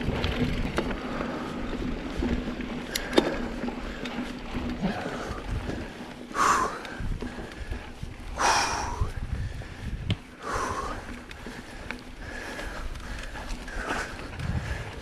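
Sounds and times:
bike frame rattle: 0.0 - 15.0
bike tyres rumbling on dirt: 0.0 - 15.0
rider huffing breaths: 0.8 - 15.0.

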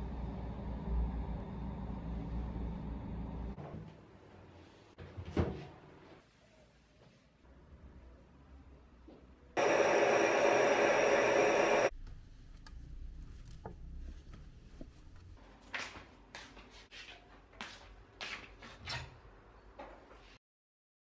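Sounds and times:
mechanical whir with whine: 0.0 - 3.6, 9.6 - 11.9.

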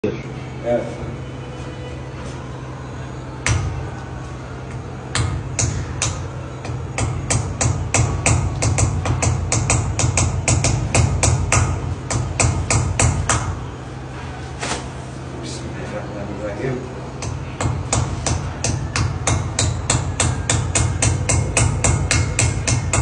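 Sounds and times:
hammer tapping chisel on glass: 5.1 - 13.5, 17.2 - 23.0.

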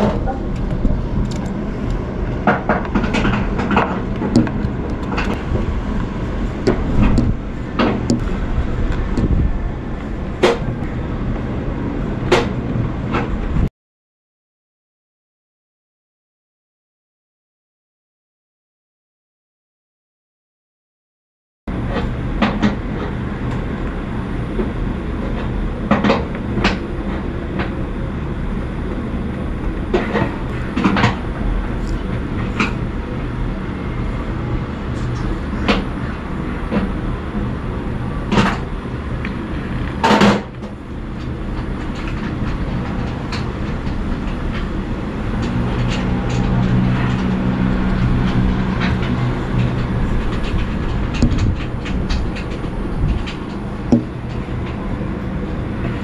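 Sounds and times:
sharp clicks and knocks: 0.0 - 9.5, 40.0 - 54.8
deeper hum: 0.0 - 13.7, 21.7 - 56.0
low mechanical hum: 0.0 - 13.7, 21.7 - 56.0.

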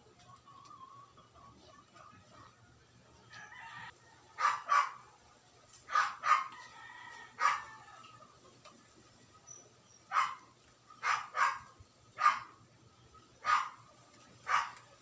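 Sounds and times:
rooster crowing: 3.3 - 4.5, 6.3 - 8.2
dog barking: 4.4 - 5.1, 5.9 - 6.6, 7.4 - 7.7, 10.1 - 12.6, 13.4 - 14.9.

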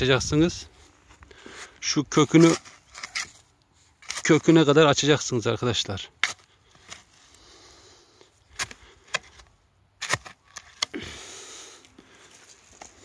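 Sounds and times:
spade scraping soil: 1.5 - 5.1, 6.0 - 11.2
spade blade knocking soil: 8.6 - 10.9.

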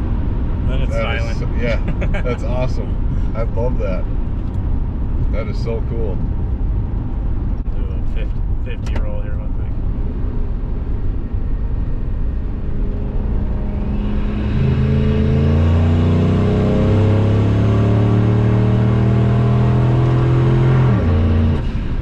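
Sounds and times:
engine accelerating inside cab: 0.0 - 22.0.

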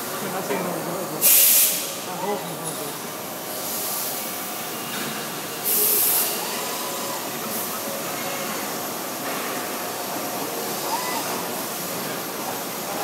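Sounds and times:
factory noise: 0.0 - 13.0
tube bending machine running: 0.0 - 13.0
short loud hiss: 1.2 - 2.0, 5.6 - 6.4.

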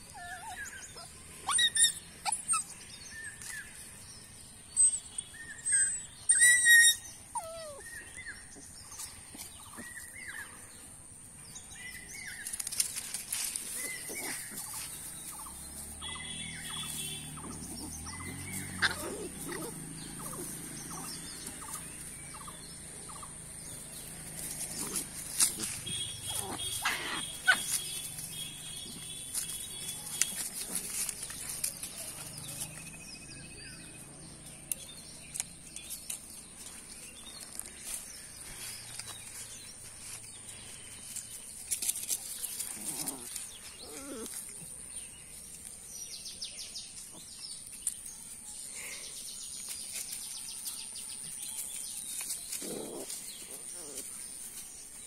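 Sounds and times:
dog whining cries: 0.0 - 2.7, 4.8 - 8.0
dogs scuffling: 23.8 - 32.9.

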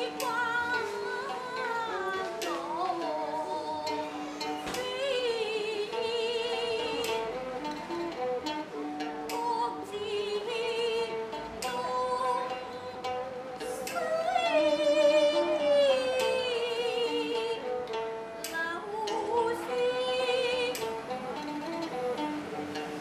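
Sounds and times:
plucked and bowed strings: 0.0 - 23.0.

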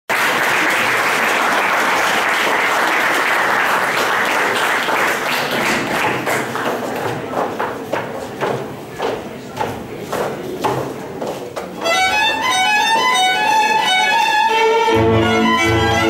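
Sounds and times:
audience applauding: 0.1 - 6.9.

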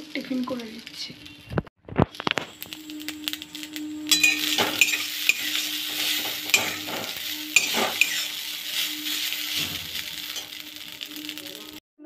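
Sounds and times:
noodles sizzling in a pan: 0.0 - 11.8
low hum: 2.1 - 11.8
metal spatula scraping a pan: 3.3 - 11.7.

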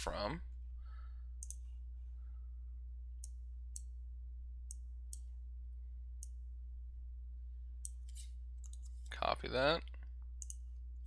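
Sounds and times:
low electrical hum: 0.0 - 11.0
computer mouse clicking: 1.4 - 1.7, 7.8 - 9.1, 10.4 - 10.7.

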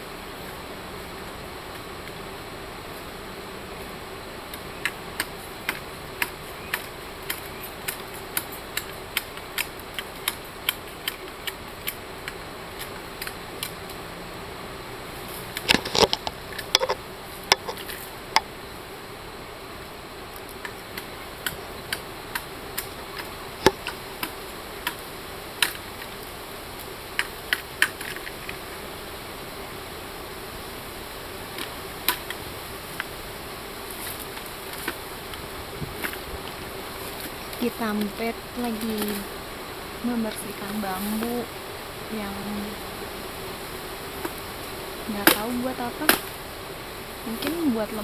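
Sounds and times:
knife striking bamboo: 15.6 - 17.9.

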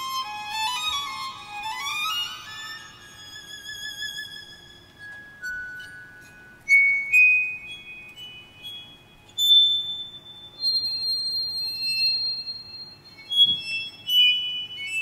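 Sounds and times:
glockenspiel notes: 5.0 - 10.5.

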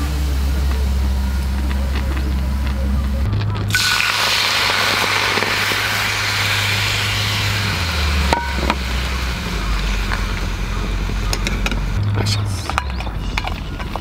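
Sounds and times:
shrimp sizzling in skillet: 3.7 - 11.1.

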